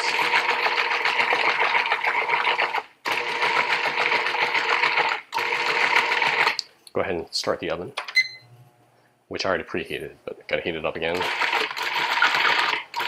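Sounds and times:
food processor motor whirring: 0:00.0 - 0:06.6, 0:11.2 - 0:13.0.

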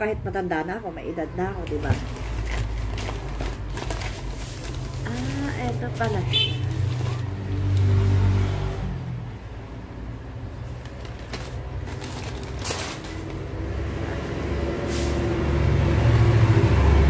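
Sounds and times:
paper bag rustling: 0:01.6 - 0:08.0, 0:10.5 - 0:13.8.

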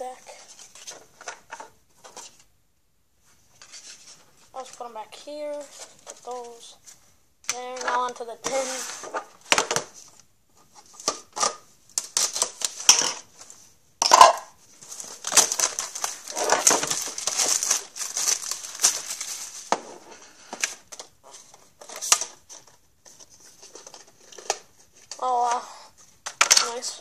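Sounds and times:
plastic wrap crinkling and tearing: 0:11.0 - 0:13.5, 0:14.8 - 0:21.1.

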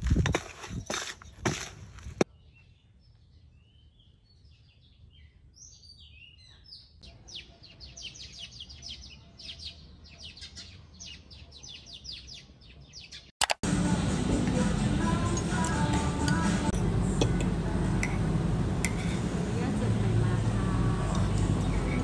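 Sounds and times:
birds chirping: 0:00.6 - 0:13.3, 0:20.1 - 0:22.0.

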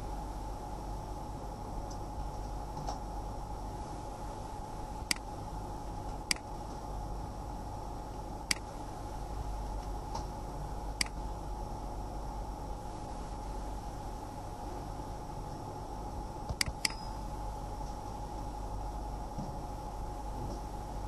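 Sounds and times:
steady background hum and hiss: 0:00.0 - 0:21.0
computer mouse clicks: 0:05.0 - 0:05.3, 0:06.2 - 0:06.5, 0:08.5 - 0:08.7, 0:11.0 - 0:11.2, 0:16.5 - 0:17.0.

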